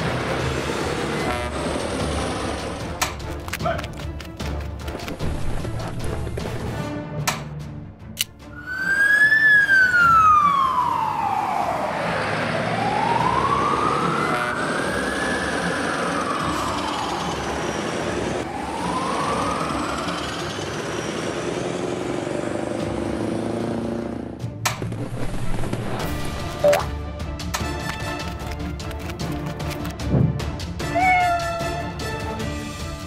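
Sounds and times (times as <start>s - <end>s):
truck driving: 0.0s - 26.8s
fire engine siren wailing: 8.5s - 22.2s.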